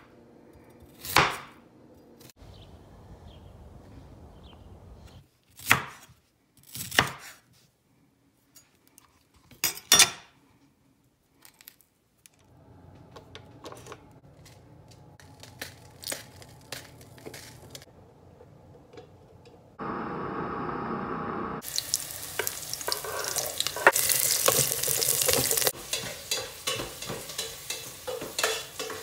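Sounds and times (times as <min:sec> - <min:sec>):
steady low hum: 0:12.6 - 0:21.6.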